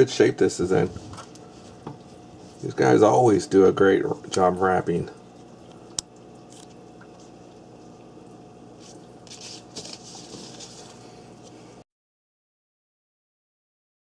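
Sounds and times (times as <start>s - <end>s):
faint steady hum: 0.0s - 11.8s
plastic wrap crinkling: 8.8s - 11.0s.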